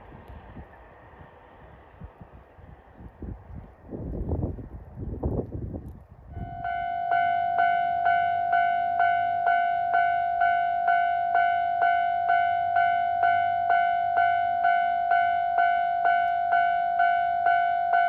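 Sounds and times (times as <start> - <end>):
wind buffeting microphone: 0.0 - 6.9
level crossing warning bell: 6.4 - 18.0.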